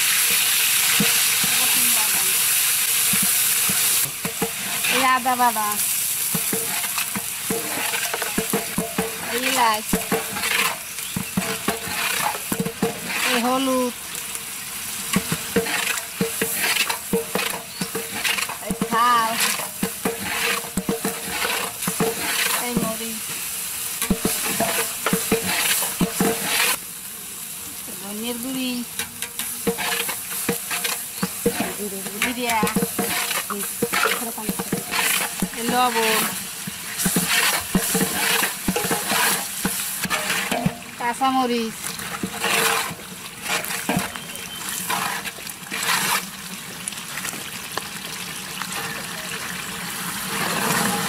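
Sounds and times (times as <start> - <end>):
frying sizzle: 0.0 - 51.0
metal ladle scraping pot: 3.1 - 5.5, 6.3 - 13.7, 15.1 - 23.1, 24.0 - 26.8, 29.0 - 41.0, 41.8 - 46.3.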